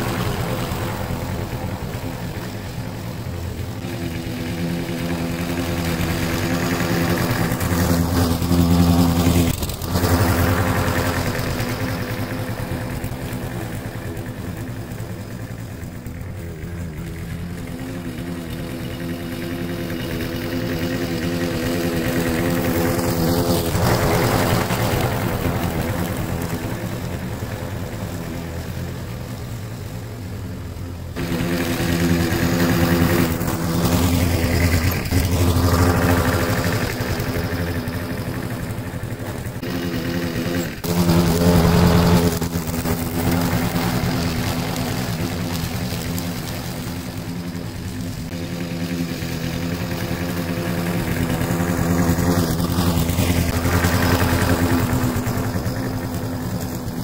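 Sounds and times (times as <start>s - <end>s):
lawn mower engine running: 0.0s - 57.0s.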